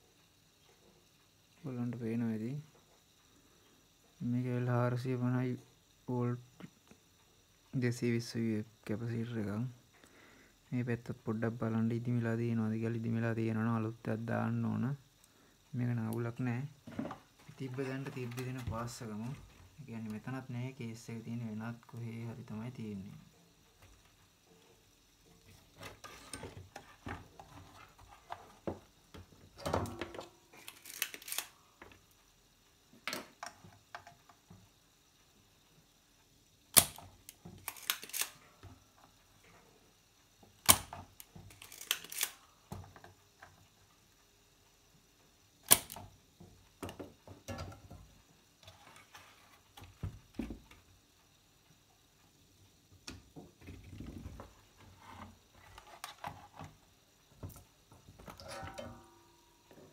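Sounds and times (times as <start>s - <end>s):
clicks and knocks of handled tools: 29.6s - 32.0s, 36.8s - 38.4s, 40.6s - 43.6s.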